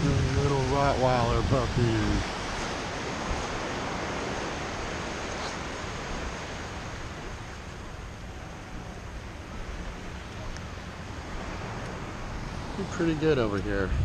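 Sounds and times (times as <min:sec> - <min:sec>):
surf washing up beach: 0:00.0 - 0:14.0
wind on microphone: 0:00.0 - 0:14.0.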